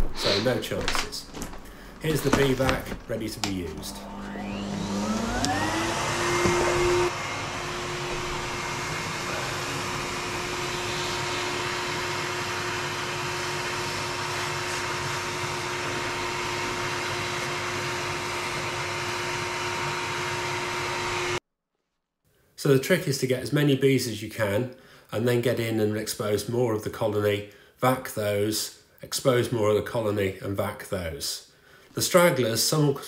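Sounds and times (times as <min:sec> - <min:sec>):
vacuum cleaner motor whine: 0:02.0 - 0:21.4.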